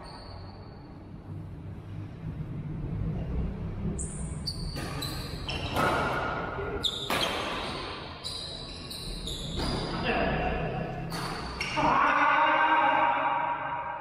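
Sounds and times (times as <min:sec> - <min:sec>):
rackets hitting shuttlecock: 0:04.7 - 0:08.0, 0:09.6 - 0:10.0, 0:11.0 - 0:11.9.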